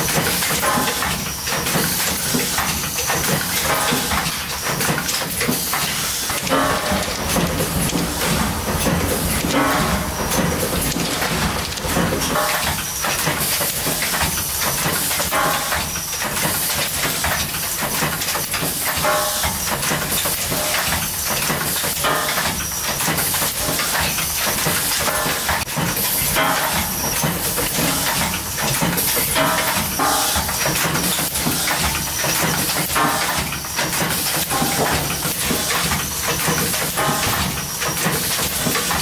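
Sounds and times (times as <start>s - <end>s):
machine clattering stroke: 0.0s - 39.0s
packing machine hiss and rattle: 0.0s - 39.0s.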